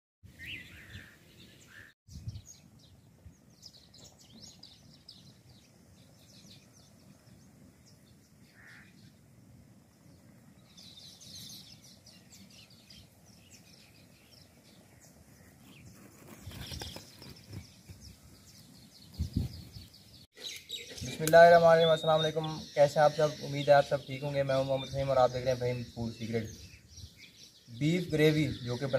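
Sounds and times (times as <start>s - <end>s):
birds chirping: 0.2s - 28.9s
outdoor background hiss: 0.3s - 28.9s.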